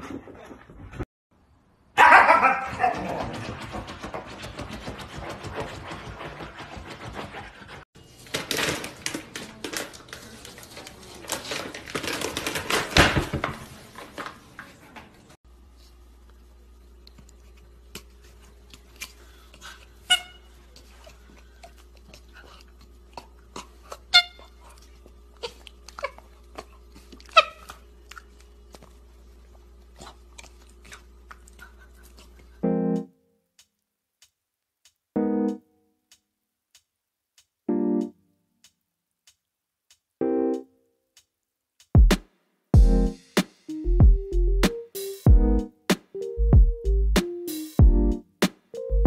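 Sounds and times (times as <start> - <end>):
food bag crinkling: 8.1 - 13.0.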